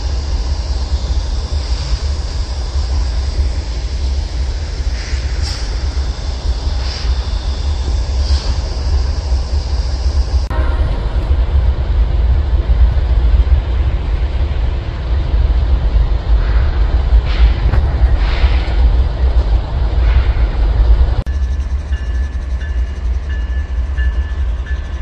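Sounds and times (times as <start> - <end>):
high hiss: 0.0 - 10.8
freight train rumbling: 0.0 - 25.0.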